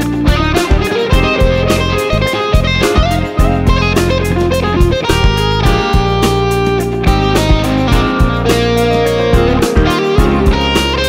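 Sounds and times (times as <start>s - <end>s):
guitar-led music with beat: 0.0s - 11.0s.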